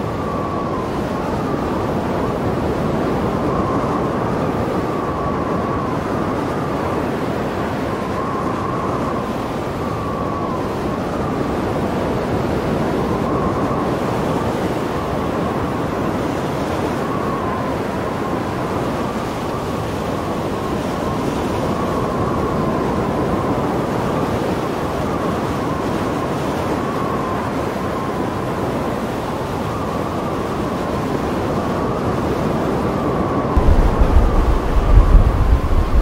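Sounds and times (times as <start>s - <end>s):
wind on microphone: 0.0s - 36.0s
waves breaking on rocks: 33.6s - 36.0s.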